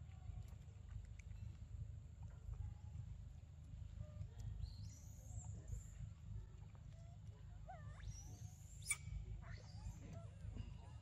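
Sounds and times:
faint animal chirps: 0:07.7 - 0:10.4.

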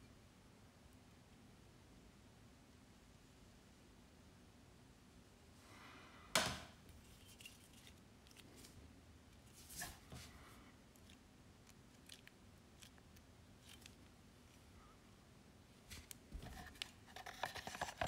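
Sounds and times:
knife handling rustle: 0:06.9 - 0:13.0, 0:13.6 - 0:14.6, 0:15.8 - 0:18.0.

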